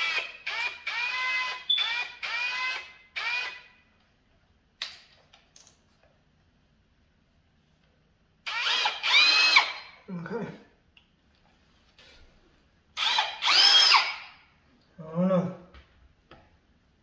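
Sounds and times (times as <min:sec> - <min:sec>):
cordless drill motor whining: 0:00.0 - 0:03.7, 0:08.5 - 0:09.9, 0:13.0 - 0:14.3.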